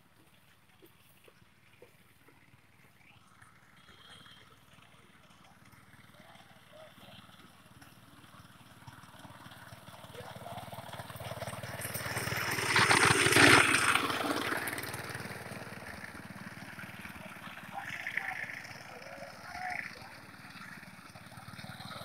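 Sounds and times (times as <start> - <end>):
reaper engine cutting crop: 6.0 - 22.0.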